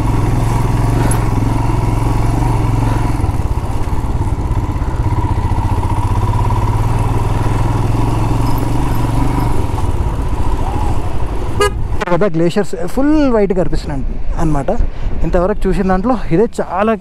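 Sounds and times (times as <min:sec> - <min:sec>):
motorcycle engine running: 0:00.0 - 0:12.0
road noise: 0:00.0 - 0:17.0.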